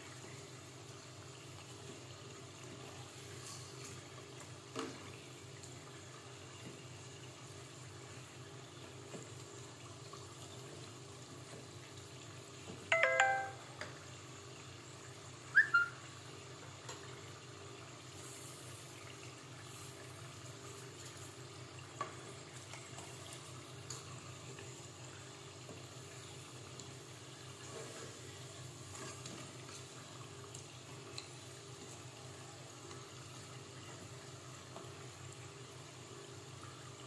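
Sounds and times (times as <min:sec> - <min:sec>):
oil sizzling and bubbling: 0:00.0 - 0:37.0
ringtone-like chime: 0:12.9 - 0:13.7.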